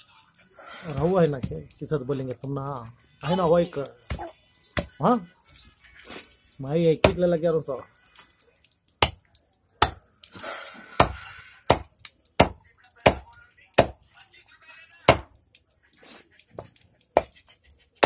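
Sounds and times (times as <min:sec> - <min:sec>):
knife chopping fish: 0:09.0 - 0:09.2, 0:09.8 - 0:10.0, 0:10.9 - 0:14.0, 0:15.1 - 0:15.3.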